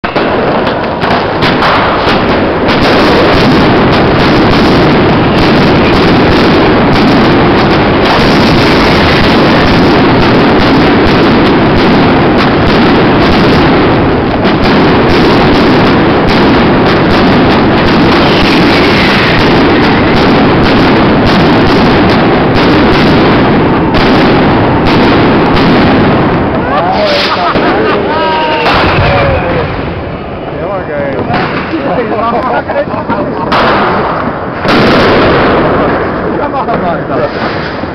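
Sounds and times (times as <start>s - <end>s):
fireworks bangs and crackles: 0.0s - 37.9s.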